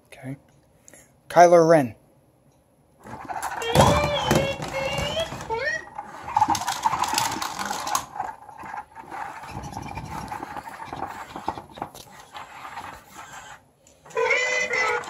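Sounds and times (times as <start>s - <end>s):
clicks and scrapes: 3.0s - 15.0s
toy robot motors whirring: 3.0s - 15.0s.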